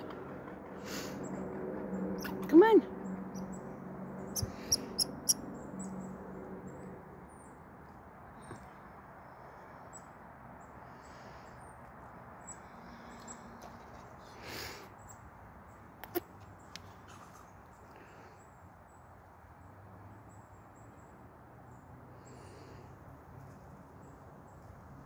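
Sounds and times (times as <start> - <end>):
squirrel sharp barking calls: 4.3 - 5.4.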